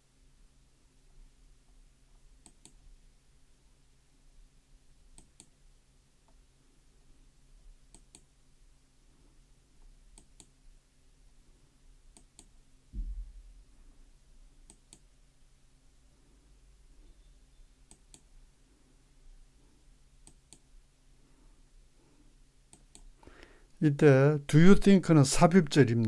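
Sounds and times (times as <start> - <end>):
low steady hum: 0.0 - 26.0
dull low thump: 12.9 - 13.6.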